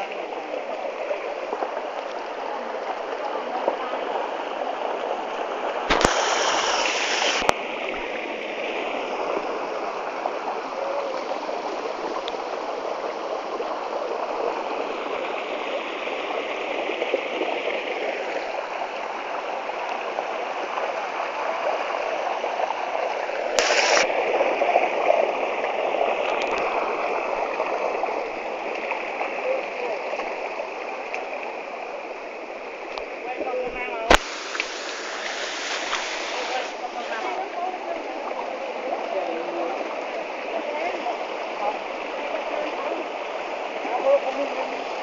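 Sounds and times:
stream water running: 0:00.0 - 0:45.0.

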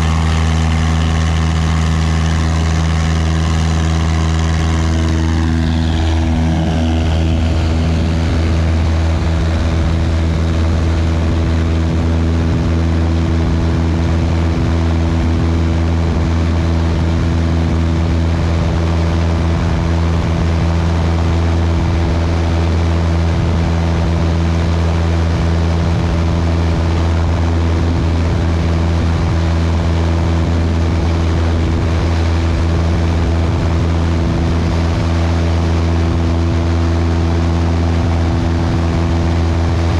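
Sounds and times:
small plane engine drone: 0:00.0 - 0:39.9.

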